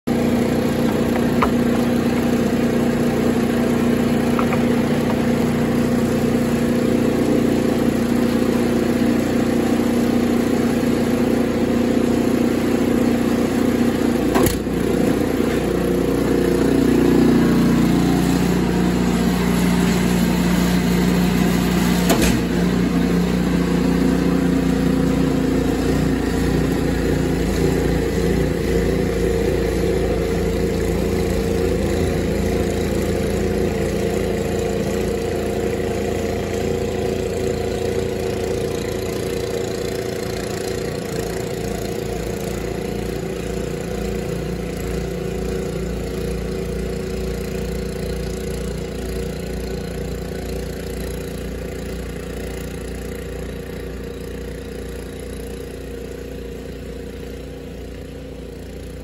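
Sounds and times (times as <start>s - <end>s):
snowblower engine running: 0.0s - 59.0s
snowblower clunk: 0.1s - 7.7s, 13.5s - 35.3s.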